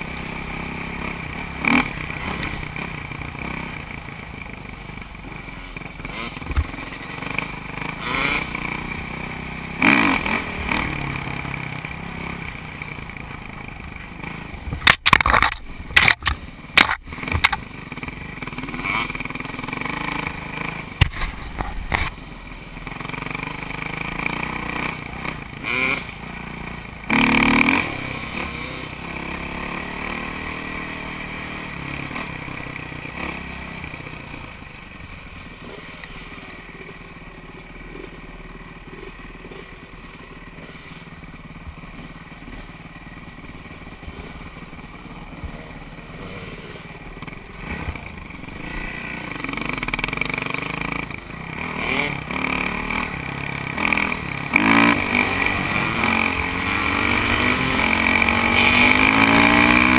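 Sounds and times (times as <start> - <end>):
dirt bike engine revving: 0.0 - 22.2, 22.8 - 59.9
sharp knocks and clatters: 14.7 - 17.6.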